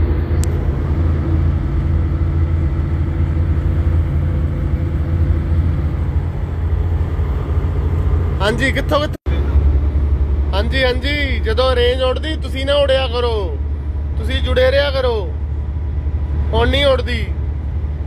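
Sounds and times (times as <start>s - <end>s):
road noise: 0.0s - 18.0s
truck diesel engine drone: 0.0s - 18.0s.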